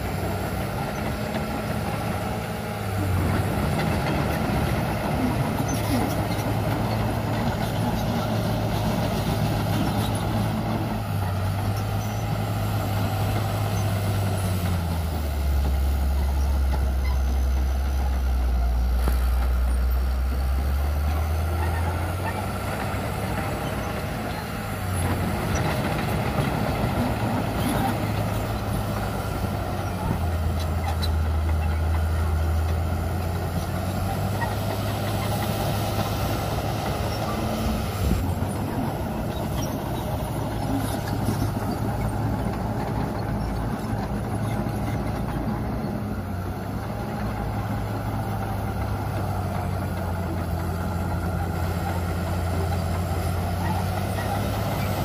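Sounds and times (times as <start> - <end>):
bulldozer diesel engine running: 0.0 - 55.0.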